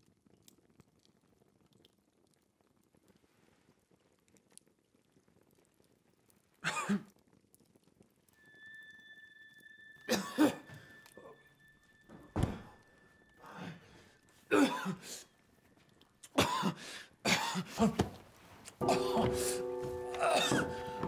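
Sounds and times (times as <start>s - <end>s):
man coughing and choking: 6.6s - 7.1s, 10.1s - 10.6s, 14.5s - 15.2s, 16.3s - 18.1s, 20.2s - 20.8s
thin high tone: 8.4s - 14.6s.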